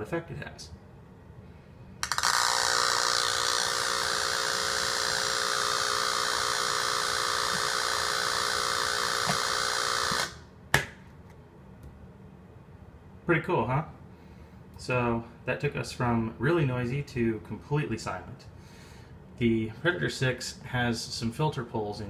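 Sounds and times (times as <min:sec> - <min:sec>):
buzzing hum: 0:01.6 - 0:10.6
harsh electrical hiss: 0:02.0 - 0:10.4.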